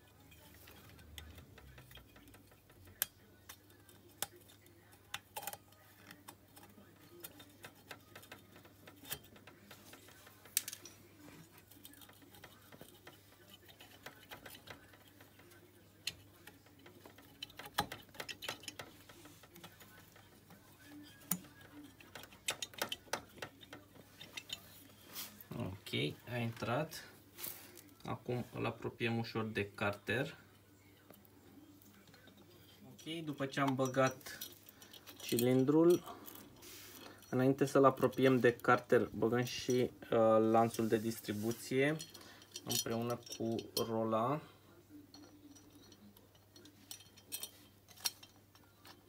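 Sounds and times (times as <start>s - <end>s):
small metallic clicks and taps: 0.0s - 25.3s, 45.1s - 49.0s.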